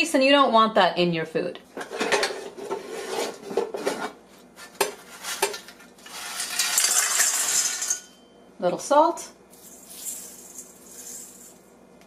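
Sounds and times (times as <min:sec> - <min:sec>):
fries rattling into metal bowl: 0:04.7 - 0:08.1, 0:09.6 - 0:11.6.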